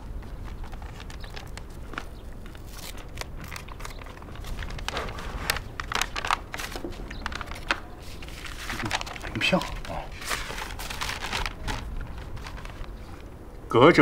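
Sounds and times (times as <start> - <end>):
paper envelope crinkling: 0.0 - 13.4
envelope tearing: 2.6 - 12.9.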